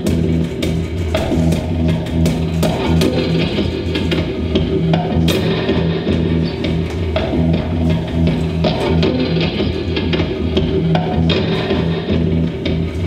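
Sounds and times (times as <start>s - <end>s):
electric guitar playing: 0.0s - 13.0s.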